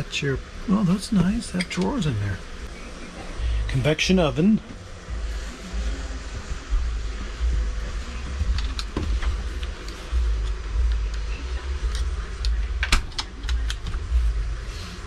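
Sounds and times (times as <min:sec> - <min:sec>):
low rumble: 0:02.6 - 0:15.0
sharp clicks and rattles: 0:08.4 - 0:14.1.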